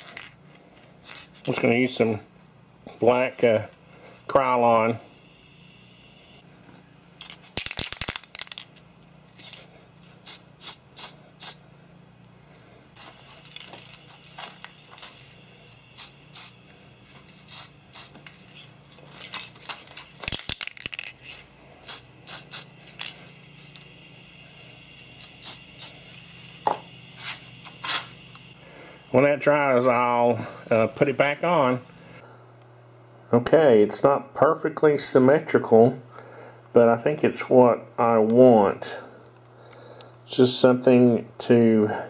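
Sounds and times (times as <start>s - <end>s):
aerosol spray hisses: 10.2s - 11.6s, 15.1s - 18.2s, 21.8s - 28.2s.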